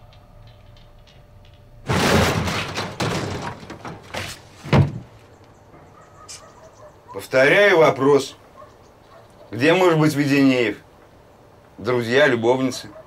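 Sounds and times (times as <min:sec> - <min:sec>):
floor hatch scraping clatter: 0:01.8 - 0:05.2
heavy thud: 0:01.8 - 0:05.2.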